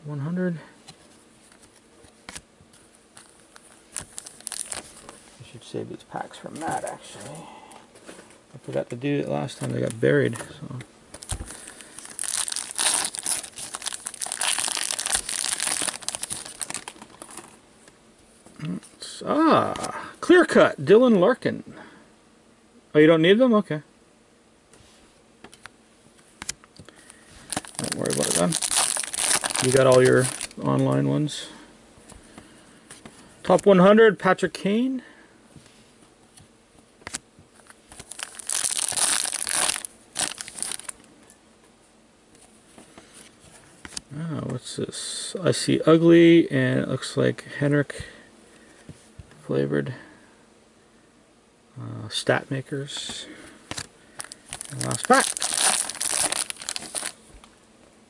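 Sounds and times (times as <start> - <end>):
wrapper crackling and crinkling: 3.2 - 5.2, 11.2 - 17.6, 27.0 - 30.8, 37.6 - 41.0, 53.7 - 57.2
card pack wrapper tearing: 3.9 - 5.1, 11.2 - 17.5, 27.5 - 30.6, 37.0 - 41.0, 53.7 - 57.2.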